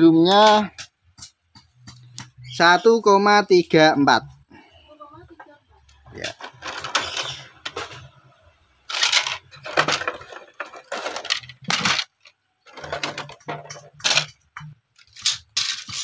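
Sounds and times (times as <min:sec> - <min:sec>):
circuit boards clattering: 0:06.2 - 0:16.0.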